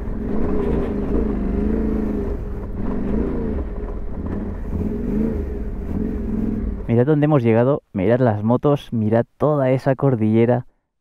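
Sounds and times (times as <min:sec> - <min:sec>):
motorcycle engine revving under load: 0:00.0 - 0:06.9.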